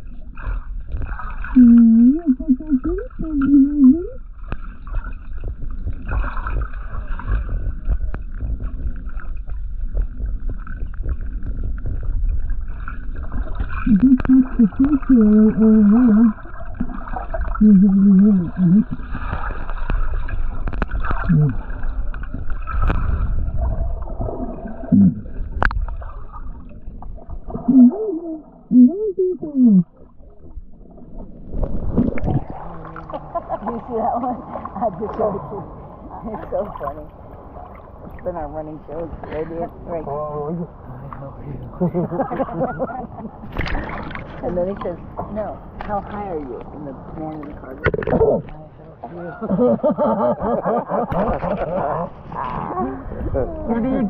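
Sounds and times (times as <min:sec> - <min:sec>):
underwater rumble of moving water: 0:00.0 - 0:54.0
short wavering tone: 0:01.6 - 0:04.2.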